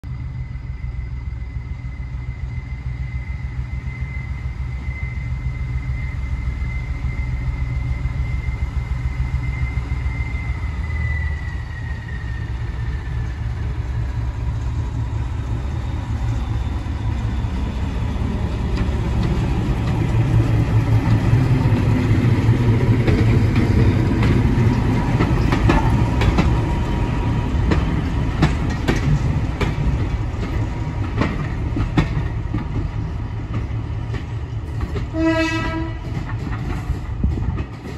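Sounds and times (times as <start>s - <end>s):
diesel locomotive engine: 0.0s - 37.9s
wheels clicking over rail joints: 27.6s - 37.9s.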